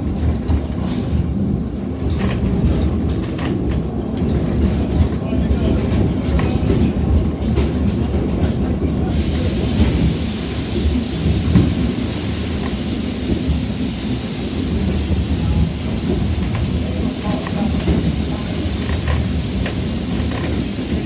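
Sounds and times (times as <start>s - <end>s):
train carriage rumble and clatter: 0.0s - 21.0s
steady hiss: 9.1s - 21.0s.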